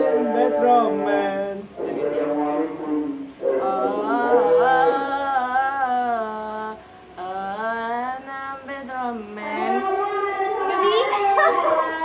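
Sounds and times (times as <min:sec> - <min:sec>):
woman singing unaccompanied: 0:03.5 - 0:12.0.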